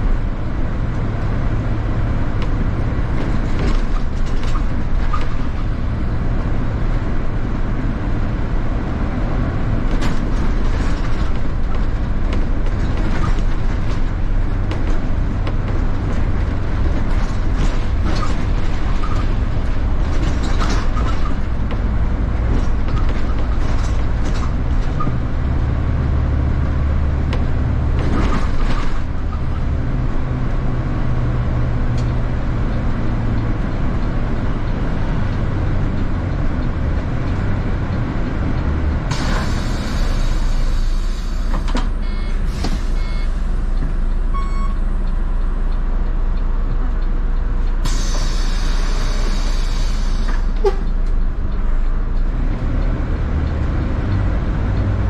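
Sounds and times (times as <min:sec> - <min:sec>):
bus body rattling and knocking: 0:00.0 - 0:55.0
bus engine rumble: 0:00.0 - 0:55.0
short electronic beeps: 0:42.0 - 0:43.4, 0:44.3 - 0:45.0.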